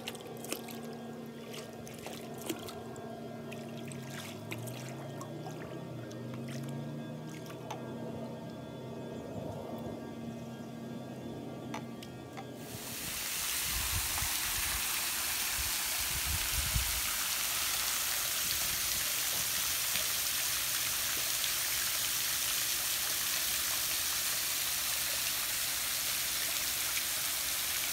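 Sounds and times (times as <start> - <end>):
water spray falling on pool: 12.6 - 27.9.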